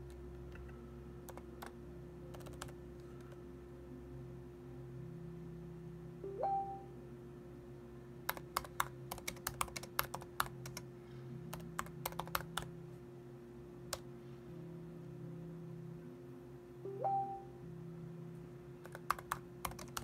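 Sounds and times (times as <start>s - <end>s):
faint hum: 0.0s - 20.0s
computer keyboard typing: 1.2s - 3.4s, 8.3s - 10.9s, 11.5s - 12.7s, 18.8s - 20.0s.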